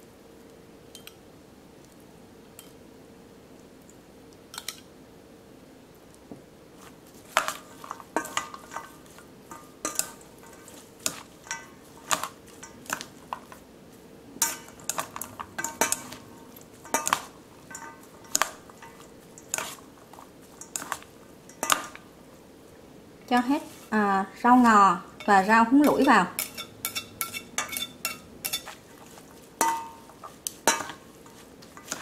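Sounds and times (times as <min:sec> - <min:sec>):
utensils clinking in metal bowl: 0:07.3 - 0:13.6, 0:14.4 - 0:22.1, 0:23.4 - 0:32.0.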